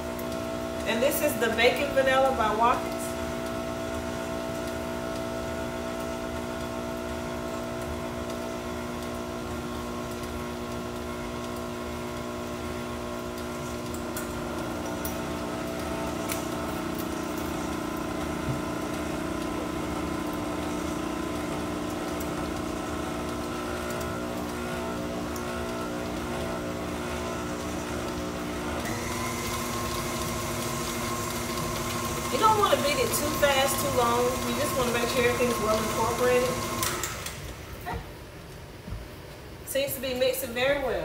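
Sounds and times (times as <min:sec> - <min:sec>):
stand mixer motor humming: 0:00.0 - 0:37.8.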